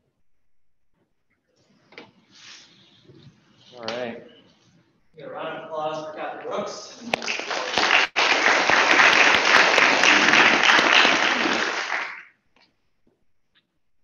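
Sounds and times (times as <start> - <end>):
audience applauding: 7.0 - 12.4.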